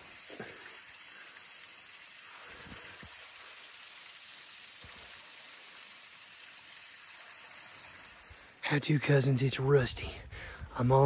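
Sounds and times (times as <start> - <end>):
water running under ice: 0.0 - 8.8.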